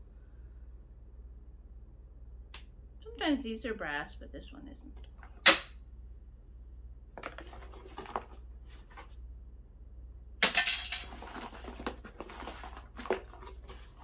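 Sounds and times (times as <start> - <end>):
cardboard box rustling and rattling: 7.2 - 9.2, 11.0 - 14.0
small metal parts clinking: 10.4 - 11.3.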